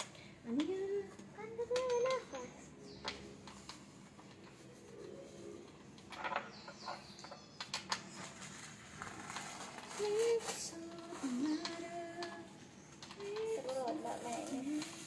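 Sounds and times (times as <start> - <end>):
clicks and rustles of plastic parts: 0.0 - 15.0.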